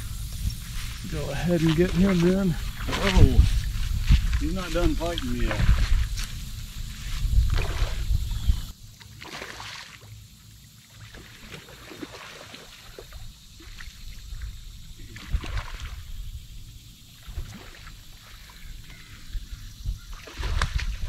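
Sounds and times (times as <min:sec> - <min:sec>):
wind on microphone: 0:00.0 - 0:08.7, 0:18.6 - 0:21.0
water splashing and sloshing: 0:00.0 - 0:16.4, 0:17.0 - 0:21.0.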